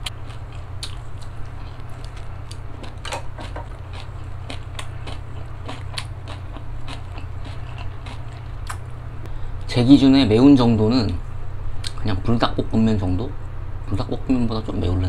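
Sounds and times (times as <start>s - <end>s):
chewing and crunching food: 0.0s - 8.9s
steady low hum: 0.0s - 15.0s.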